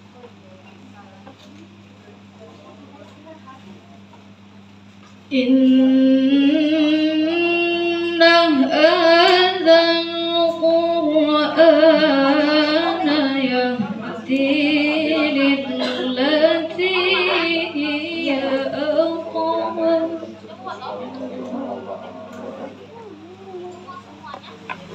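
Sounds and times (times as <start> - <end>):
faint steady hum: 0.0 - 24.9
woman chanting melodically: 5.3 - 22.8.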